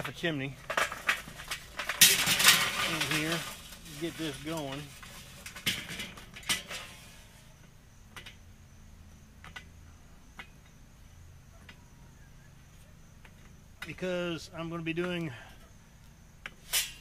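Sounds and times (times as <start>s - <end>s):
charcoal briquettes clattering: 0.0s - 8.5s, 16.5s - 17.0s.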